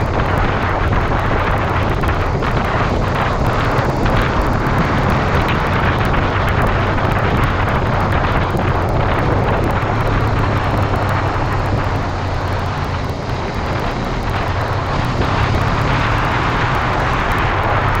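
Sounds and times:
motorcycle engine running: 0:00.0 - 0:18.0
wind rushing: 0:00.0 - 0:18.0.

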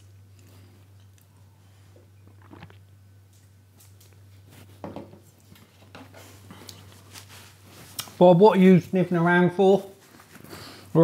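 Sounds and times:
low steady hum: 0:00.0 - 0:11.0
man swallowing water: 0:02.2 - 0:03.0.

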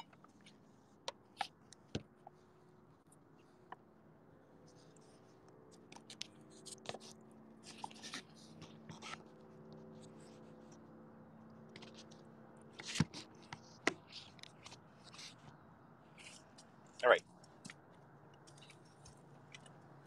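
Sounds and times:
faint steady hum: 0:00.0 - 0:20.0
phone handling clicks and scrapes: 0:05.5 - 0:10.8, 0:11.7 - 0:15.6.

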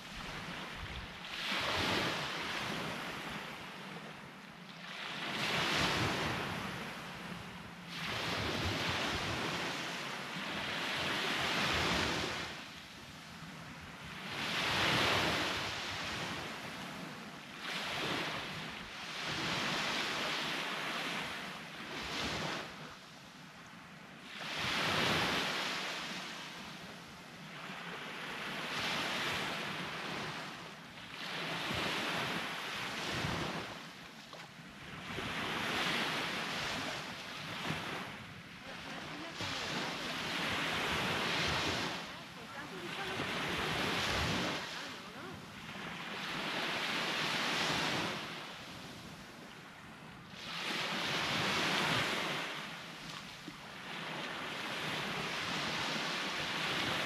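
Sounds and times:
sea waves breaking on beach: 0:00.0 - 0:23.2, 0:24.2 - 0:57.0.

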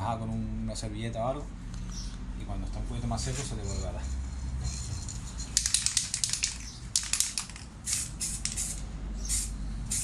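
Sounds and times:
aerosol paint spraying: 0:05.6 - 0:10.0.

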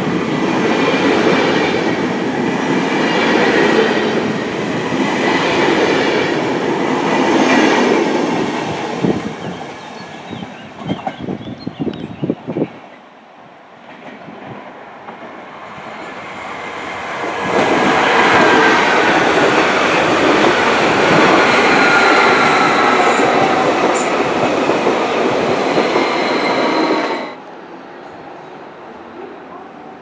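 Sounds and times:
train wheels rushing on rails: 0:00.0 - 0:13.0, 0:13.7 - 0:27.5.

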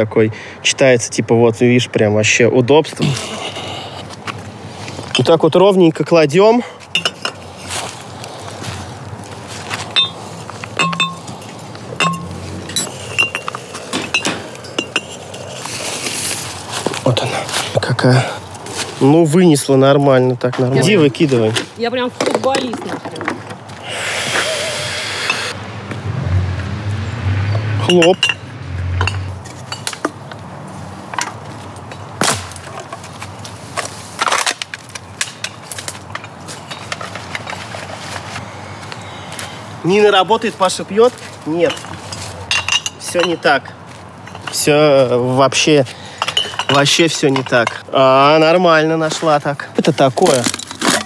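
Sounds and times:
glass bottles clinking: 0:06.9 - 0:07.4, 0:09.9 - 0:15.7, 0:27.8 - 0:30.0, 0:41.6 - 0:43.6, 0:44.2 - 0:44.8, 0:46.1 - 0:47.8.

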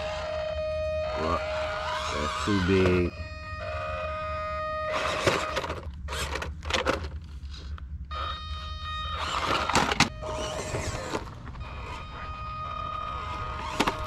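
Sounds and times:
small electric motor whining: 0:00.0 - 0:06.8, 0:07.5 - 0:14.0
tires scraping on rough concrete: 0:09.2 - 0:14.0.

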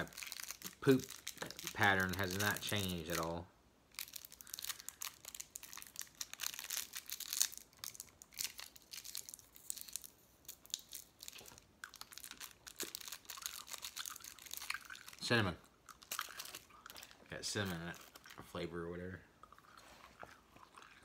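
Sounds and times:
wrapper crinkling and tearing: 0:00.0 - 0:18.5.

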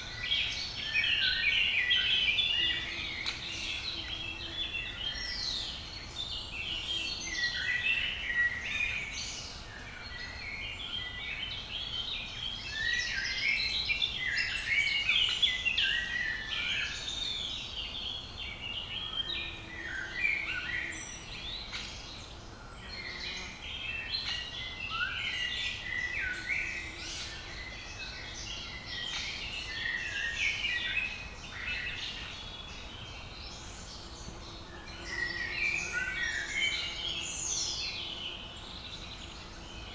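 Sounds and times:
songbirds chirping chorus: 0:00.0 - 0:39.9.

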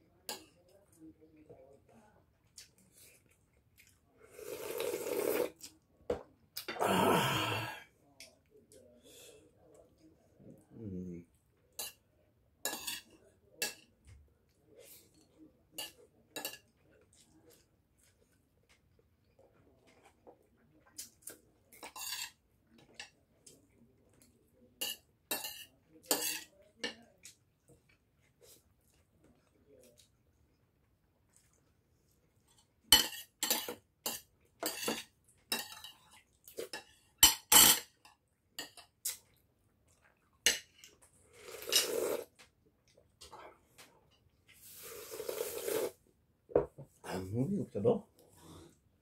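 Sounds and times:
slurping hot soup: 0:04.2 - 0:05.8, 0:41.2 - 0:42.4, 0:44.5 - 0:46.0
throaty vocal sound: 0:06.7 - 0:07.9
dishes clinking: 0:36.7 - 0:38.9.

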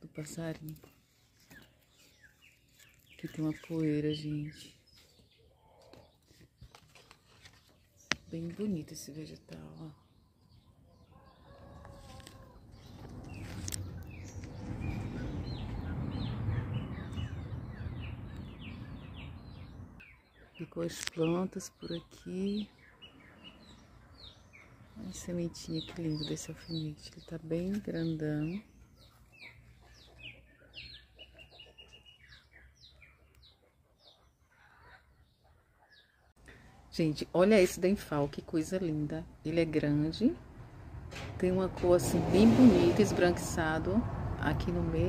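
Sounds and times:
small birds chirping: 0:00.0 - 0:40.8
low rumble: 0:12.6 - 0:20.0.

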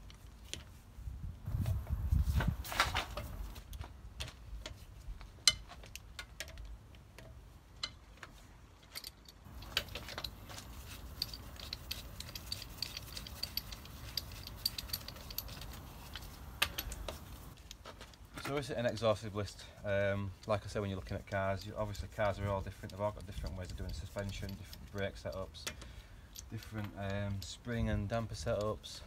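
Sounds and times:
metal wheel brace clinking: 0:08.8 - 0:17.6, 0:20.4 - 0:28.8.

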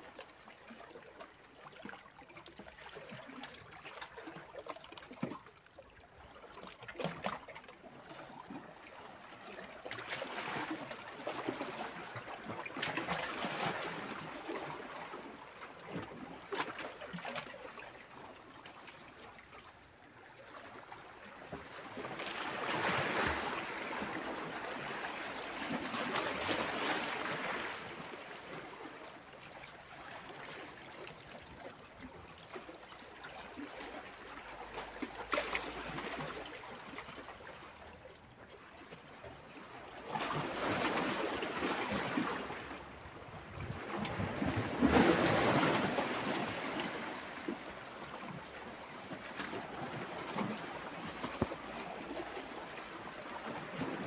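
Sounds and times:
sea waves washing among boulders: 0:21.7 - 0:29.1, 0:40.0 - 0:54.0.

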